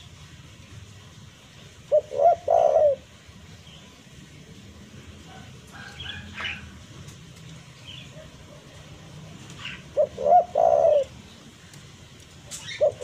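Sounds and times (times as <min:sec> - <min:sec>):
dove cooing: 0:01.8 - 0:03.4, 0:05.0 - 0:06.9, 0:07.9 - 0:11.7, 0:12.5 - 0:13.0.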